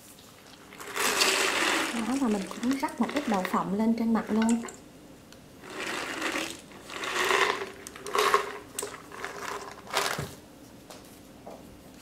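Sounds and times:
peanuts rustling: 0.0s - 4.8s, 5.6s - 10.3s
faint steady hum: 0.0s - 12.0s.

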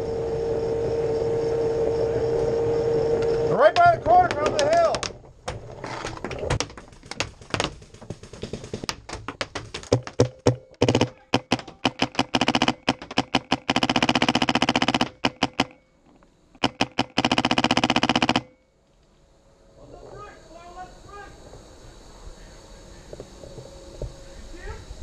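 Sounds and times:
paintball marker firing: 9.9s - 15.8s, 16.6s - 18.5s.

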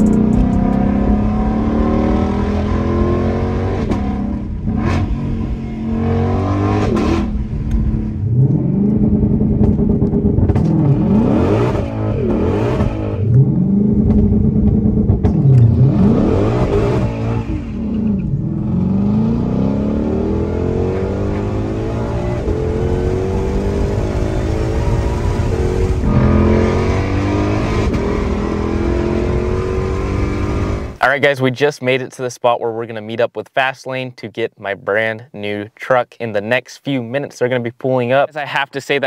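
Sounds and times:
car engine accelerating hard: 0.0s - 31.0s.

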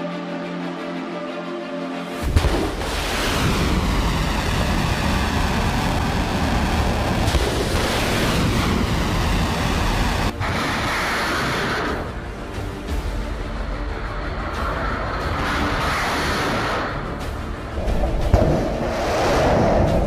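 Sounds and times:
rocket motor ignition blast: 2.2s - 12.0s
rocket exhaust roar: 2.2s - 12.2s.

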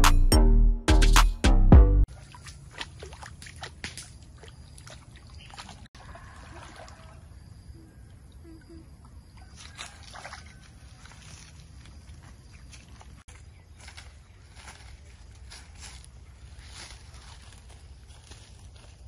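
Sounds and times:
feet splashing in shallow water: 2.1s - 7.3s, 9.4s - 19.0s.

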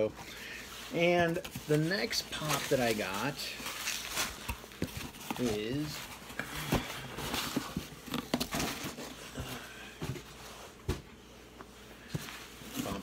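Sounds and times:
packaging rustling: 0.9s - 9.4s.

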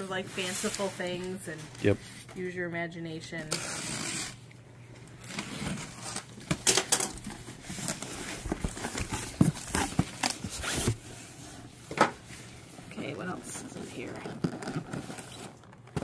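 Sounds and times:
box cutter slitting tape: 3.5s - 4.4s
cardboard ripping and rustling: 7.2s - 11.1s, 14.0s - 16.0s.

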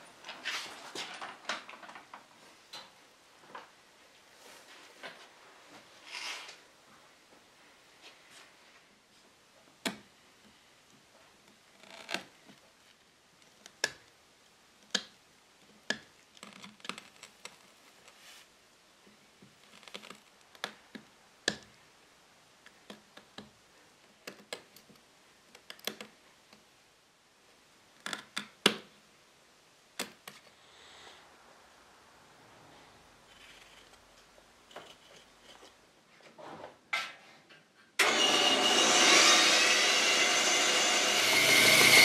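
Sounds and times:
chisel tapping and scraping wood: 19.4s - 21.7s, 22.7s - 23.6s.

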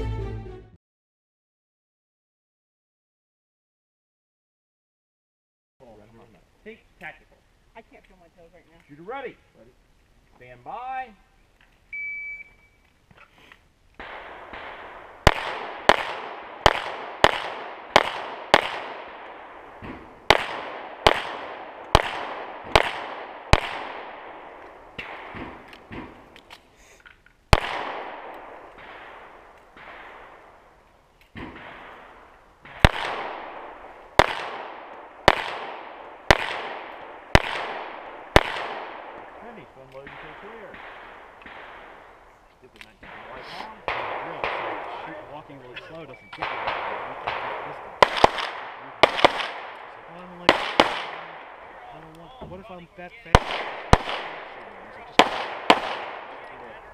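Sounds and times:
pistol shots with echo: 14.0s - 26.4s, 27.5s - 42.3s, 43.0s - 45.6s, 46.4s - 51.8s, 53.3s - 56.9s
faint distant gunshots: 14.0s - 26.6s, 27.5s - 45.6s, 46.4s - 56.9s.

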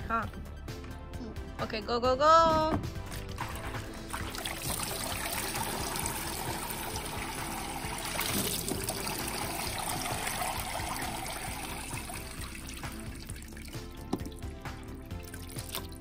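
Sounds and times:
water streams splashing into basin: 3.1s - 16.0s
water trickling from spout: 3.4s - 16.0s.

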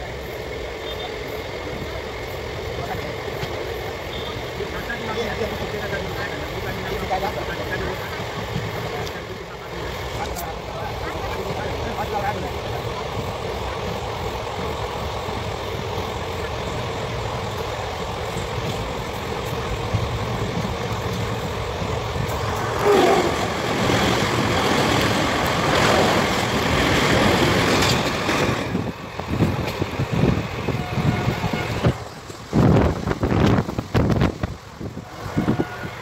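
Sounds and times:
passing train rush: 0.0s - 36.0s
train wheels rumbling on rails: 0.0s - 36.0s
wind at open door: 23.6s - 35.8s.

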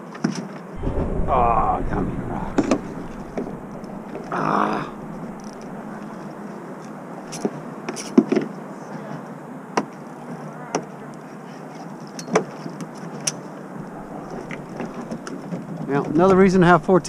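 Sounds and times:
wind and water hiss: 0.4s - 8.8s, 12.8s - 17.0s.

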